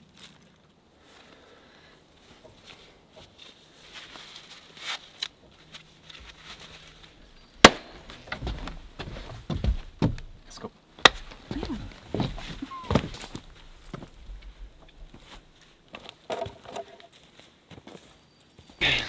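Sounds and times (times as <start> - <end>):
heavy footsteps on forest ground: 5.5 - 19.0
sharp slap: 7.6 - 7.9.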